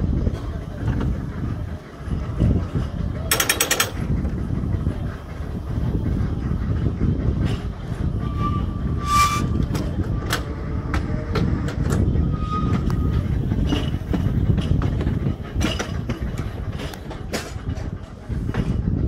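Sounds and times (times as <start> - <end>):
tram rumble: 0.0 - 19.0
wheels clicking over rail joints: 0.0 - 19.0
wheel squeals: 6.1 - 19.0.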